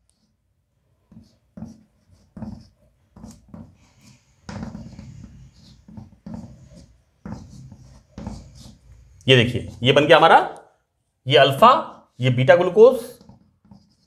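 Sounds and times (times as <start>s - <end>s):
chalk scratching on blackboard: 0.0s - 0.4s, 1.0s - 10.0s, 12.6s - 14.0s.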